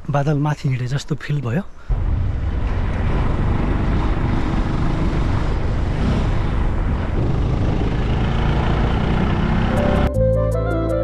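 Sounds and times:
vehicle driving along a road: 1.9s - 10.1s.

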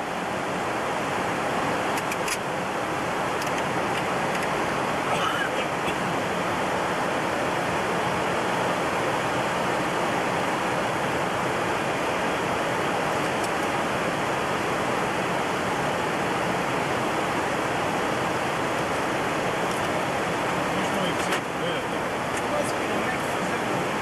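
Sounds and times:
jet cockpit rushing noise: 18.8s - 24.0s.

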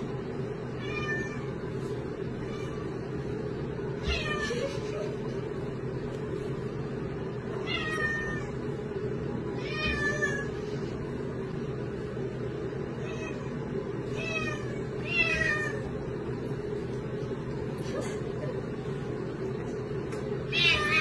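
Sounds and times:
steady low hum: 0.0s - 21.0s
cat meowing: 7.6s - 8.6s, 20.5s - 21.0s.

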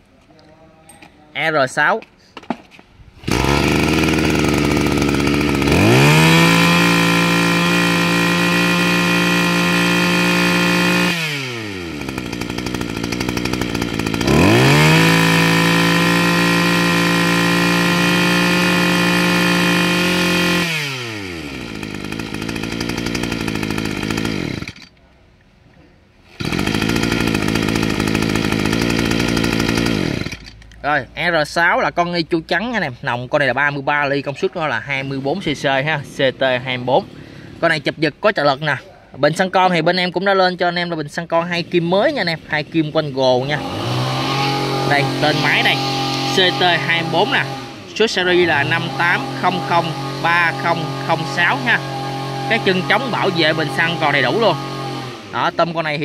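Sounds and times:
brush cutter engine revving: 3.2s - 25.0s, 26.3s - 30.8s, 34.8s - 38.0s, 41.2s - 56.0s.

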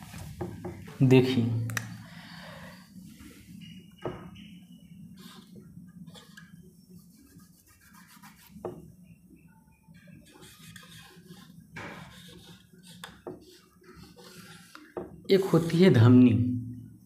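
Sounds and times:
marker writing on whiteboard: 5.2s - 9.2s, 9.9s - 15.6s.

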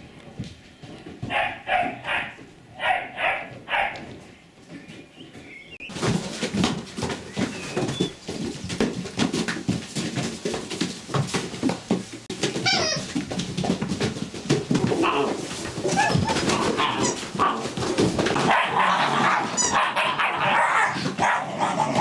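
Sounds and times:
puppies scuffling in pen: 0.0s - 22.0s
dog barking: 1.3s - 4.1s, 18.4s - 22.0s.

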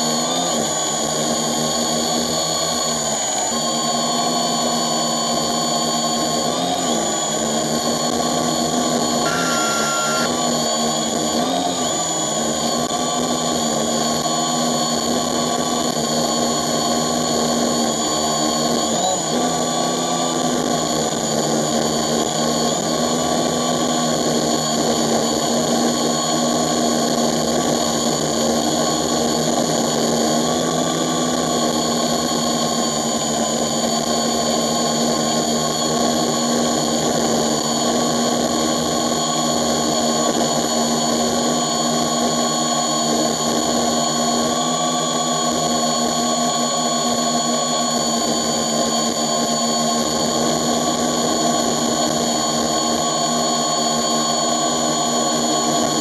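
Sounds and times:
drone propellers whirring: 0.0s - 56.0s.

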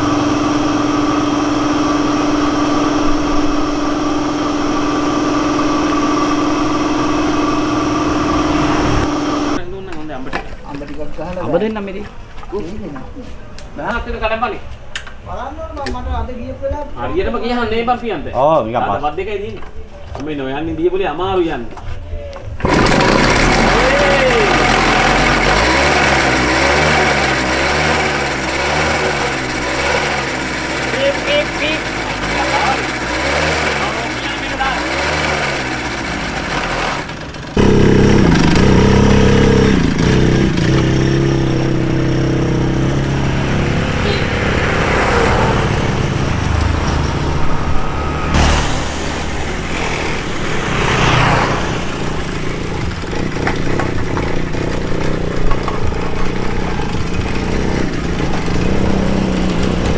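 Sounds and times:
moped engine idling: 0.0s - 9.6s, 22.6s - 47.7s, 49.3s - 59.9s.

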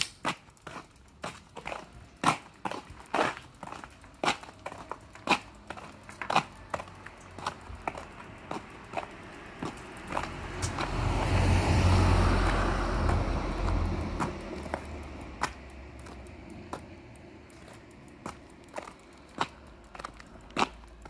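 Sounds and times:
footsteps on pavement: 0.0s - 21.0s
car passing by: 6.1s - 17.0s.

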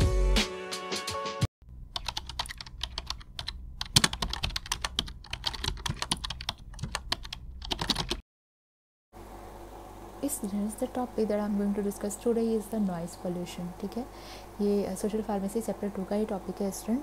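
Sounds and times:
low steady hum: 1.7s - 7.7s, 9.2s - 17.0s
rapid clicking and tapping: 2.0s - 8.2s.

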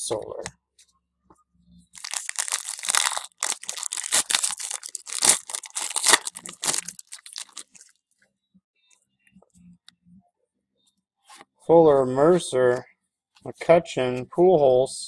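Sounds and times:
foil wrapper crinkling and tearing: 2.0s - 8.0s.

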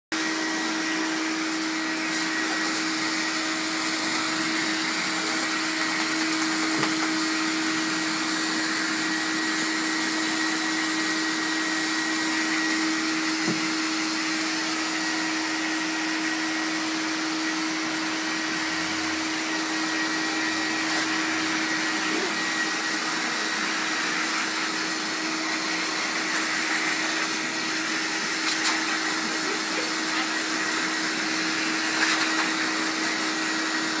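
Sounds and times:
pet dryer blowing air: 0.1s - 34.0s
motor whine: 18.0s - 31.6s.

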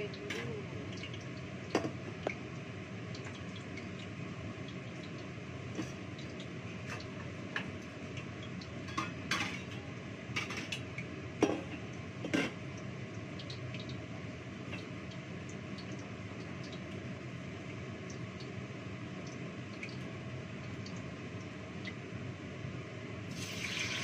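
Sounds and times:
dishes and utensils clinking: 8.9s - 9.8s.

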